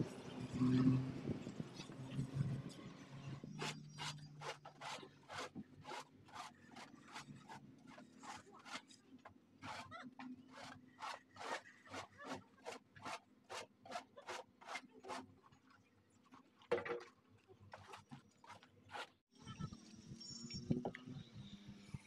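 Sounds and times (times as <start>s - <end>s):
straightedge scraping a wall: 3.4s - 9.0s, 9.6s - 15.3s, 17.8s - 19.2s.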